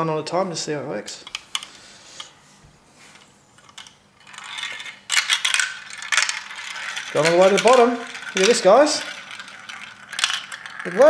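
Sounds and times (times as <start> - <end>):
marble rattling down plastic track: 3.7 - 11.0.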